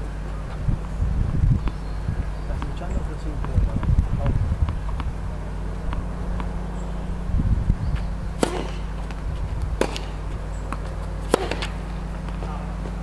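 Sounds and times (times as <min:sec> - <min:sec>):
ball bouncing on hard court: 0:02.6 - 0:04.0, 0:05.9 - 0:06.6, 0:08.0 - 0:09.2, 0:09.8 - 0:12.5
tennis racket hitting ball: 0:05.9 - 0:06.6, 0:08.3 - 0:12.5.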